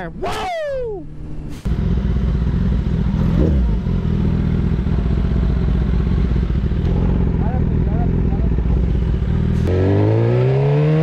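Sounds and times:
motorcycle engine running: 0:01.7 - 0:10.1.

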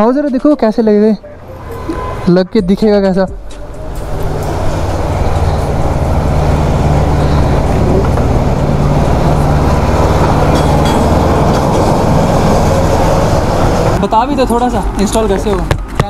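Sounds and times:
vehicle engine running: 0:03.2 - 0:15.8.

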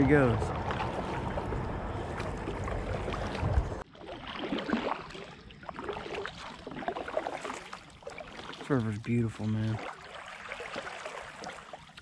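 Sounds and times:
low rumble on microphone: 0:00.0 - 0:03.8
paddle splashes and drips: 0:00.0 - 0:12.0.

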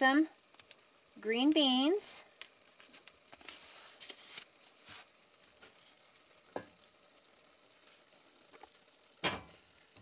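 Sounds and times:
faint sizzling: 0:00.0 - 0:10.0.

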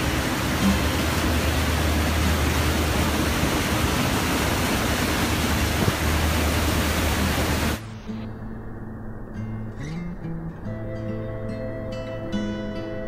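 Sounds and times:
churning boat wake: 0:00.0 - 0:07.8
wind on microphone: 0:00.0 - 0:12.4
boat engine hum: 0:00.0 - 0:13.0.

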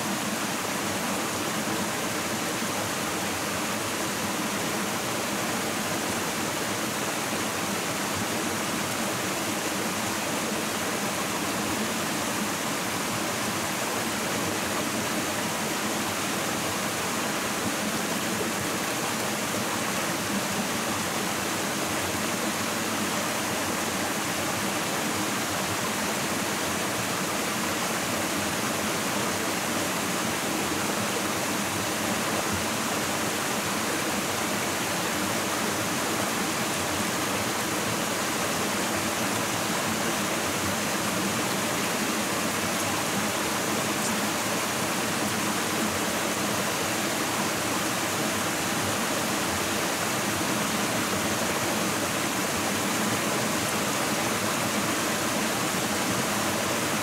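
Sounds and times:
running water rushing: 0:00.0 - 0:57.0.

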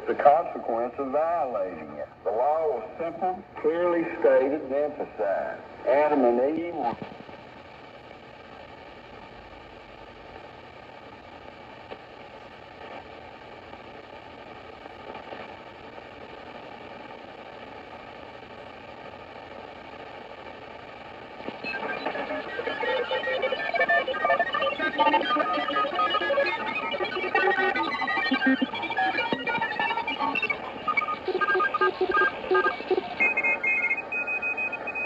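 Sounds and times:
music on radio: 0:00.0 - 0:35.0
radio static hiss: 0:00.0 - 0:35.0
radio whistles: 0:21.4 - 0:35.0.

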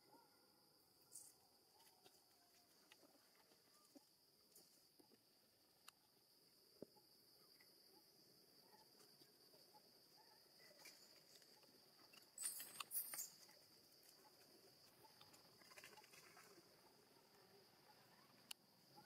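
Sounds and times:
crackling rustle: 0:10.8 - 0:16.8.

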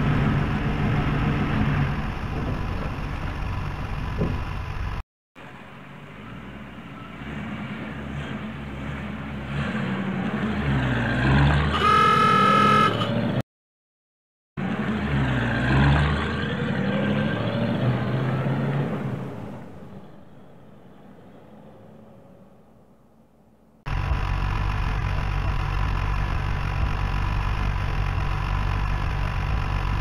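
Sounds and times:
truck engine running: 0:00.0 - 0:09.6, 0:23.9 - 0:30.0
horn honking: 0:11.6 - 0:13.4.

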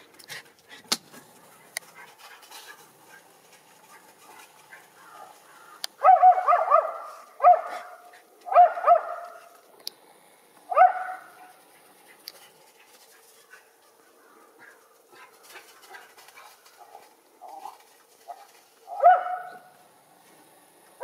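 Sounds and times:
small dog barking: 0:06.0 - 0:09.4, 0:10.7 - 0:11.5, 0:18.3 - 0:19.7.

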